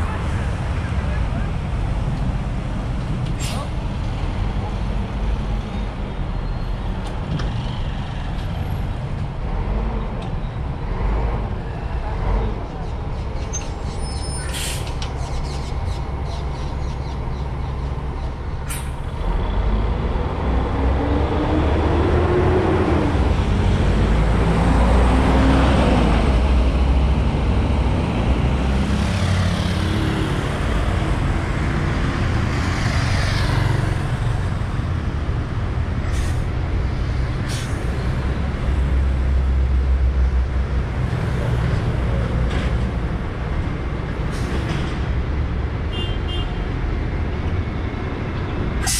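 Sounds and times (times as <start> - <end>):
bus engine pulling away: 0.0 - 45.9
bus arriving and stopping: 0.0 - 48.9
traffic passing: 0.0 - 48.9
air-brake hisses: 14.4 - 15.0.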